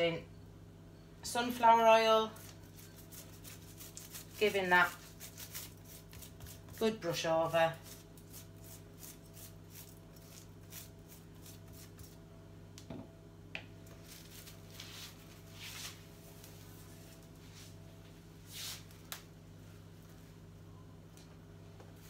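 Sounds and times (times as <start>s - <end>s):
pastry brush swishing: 2.4s - 7.0s, 7.7s - 12.2s.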